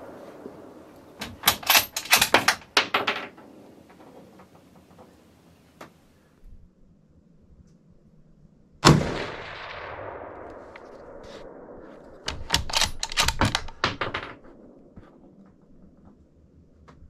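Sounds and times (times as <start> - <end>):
sharp metallic rifle clacks: 1.2 - 2.7, 12.3 - 14.4
rifle shot: 8.8 - 15.3.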